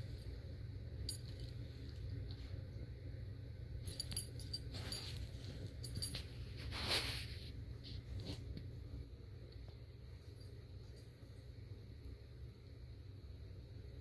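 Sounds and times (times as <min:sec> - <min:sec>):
low steady hum: 0:00.0 - 0:14.0
collar tags jingling: 0:03.8 - 0:06.5.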